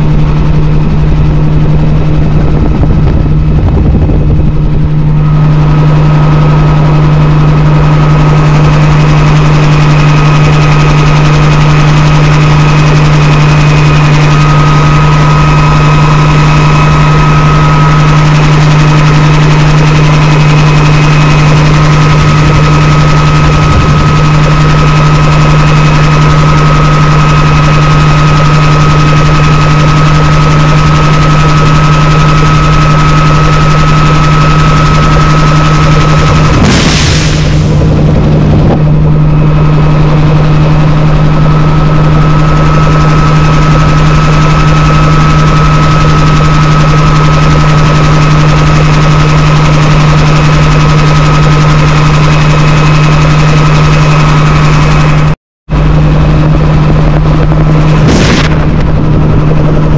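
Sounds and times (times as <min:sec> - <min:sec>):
helicopter engine and rotor hum: 0:00.0 - 0:59.9
thin high whine: 0:00.0 - 0:59.9.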